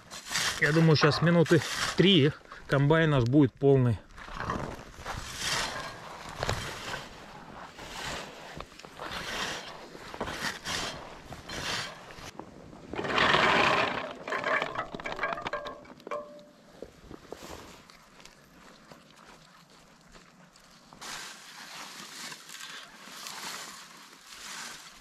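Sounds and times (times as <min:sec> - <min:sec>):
berry scoop rustling through vines: 0:04.2 - 0:14.6, 0:20.6 - 0:25.0.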